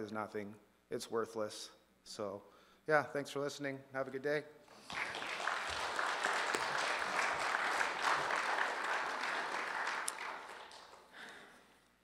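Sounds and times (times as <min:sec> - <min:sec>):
congregation applauding: 0:04.7 - 0:11.6.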